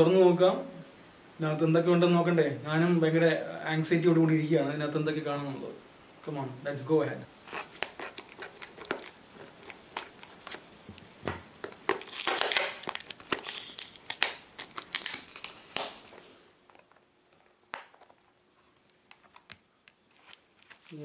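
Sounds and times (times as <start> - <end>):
plastic wrapping crinkling and tearing: 7.4 - 21.0
scissors cutting plastic: 7.5 - 10.6, 11.9 - 16.1.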